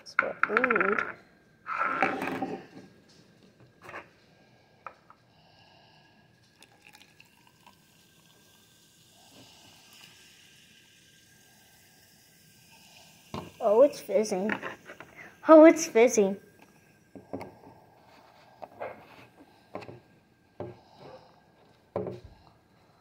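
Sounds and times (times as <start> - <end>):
water trickling into a plastic tube: 6.3 - 15.4.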